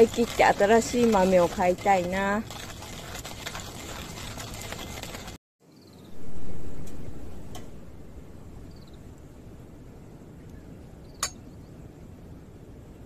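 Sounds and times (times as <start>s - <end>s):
campfire crackles: 0.0s - 5.4s
coffee mill grinding beans: 0.0s - 5.4s.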